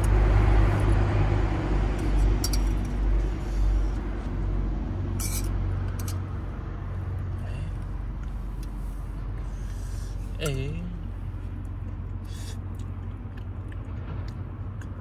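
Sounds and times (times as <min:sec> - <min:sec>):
metallic clink: 0:05.2 - 0:06.2.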